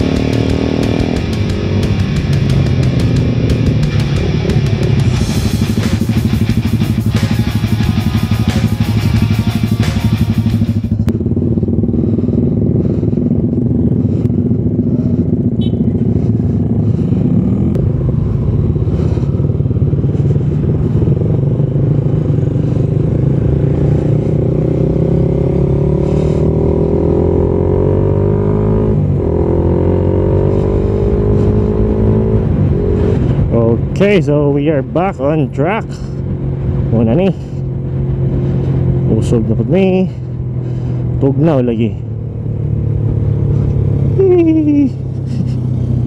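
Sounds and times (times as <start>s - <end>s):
background music: 0.0s - 10.9s
motorcycle engine accelerating: 0.0s - 46.0s.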